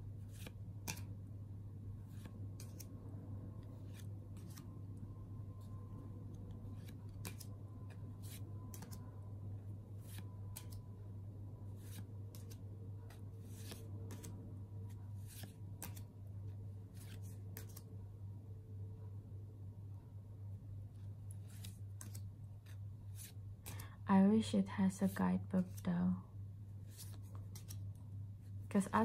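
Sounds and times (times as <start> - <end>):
cards flipped through by hand: 0.2 - 1.2, 2.1 - 3.0, 3.6 - 4.8, 6.4 - 9.2, 9.9 - 10.9, 11.7 - 17.9, 21.2 - 23.9, 26.8 - 28.0.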